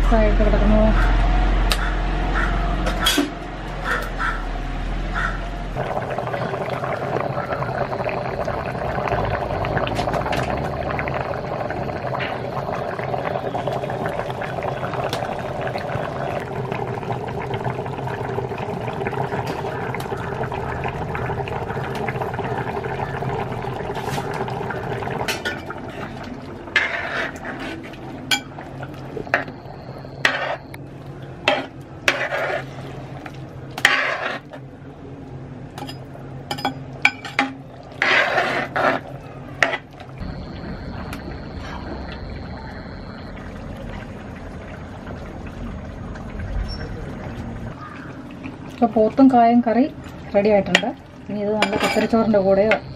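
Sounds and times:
curry bubbling in a pot: 0:05.8 - 0:52.9
metal ladle scraping a pot: 0:26.7 - 0:28.0, 0:30.2 - 0:30.6, 0:31.5 - 0:32.8, 0:33.8 - 0:34.6, 0:38.0 - 0:39.9.

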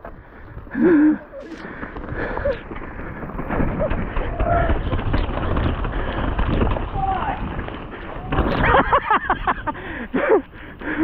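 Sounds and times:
bike knocking over roots: 0:00.0 - 0:11.0
mountain bike tyres rumbling: 0:00.0 - 0:11.0.

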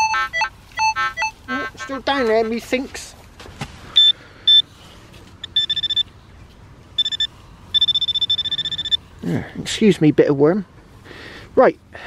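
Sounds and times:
metal detector tones: 0:00.0 - 0:02.3, 0:04.0 - 0:04.6, 0:05.4 - 0:06.1, 0:07.0 - 0:09.0.

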